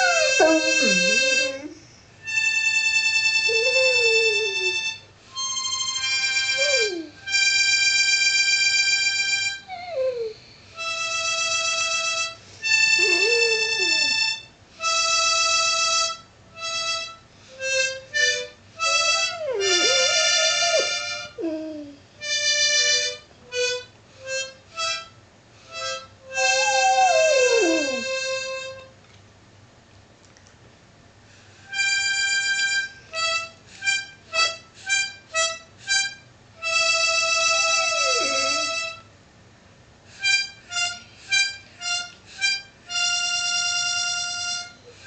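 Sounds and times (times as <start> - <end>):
dog howling: 0.0 - 1.8, 3.5 - 4.9, 6.5 - 7.2, 9.7 - 10.4, 12.9 - 14.3, 18.9 - 22.0, 26.3 - 28.4, 37.3 - 38.8
harmonica playing: 0.0 - 28.9, 31.6 - 39.1, 40.1 - 45.0.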